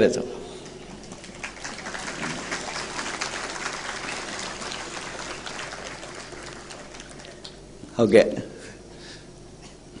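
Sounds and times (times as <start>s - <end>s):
audience applauding: 0.8s - 7.7s.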